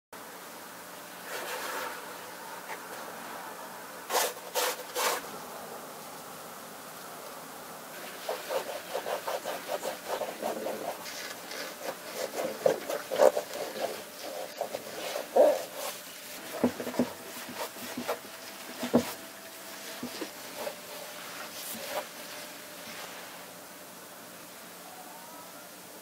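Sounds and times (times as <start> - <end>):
cloth rubbing on rubber sneaker: 4.1 - 5.3, 8.0 - 23.6.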